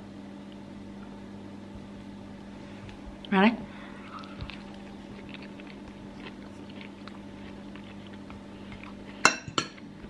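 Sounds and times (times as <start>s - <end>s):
steady low hum: 0.0s - 10.0s
person chewing: 2.9s - 10.0s.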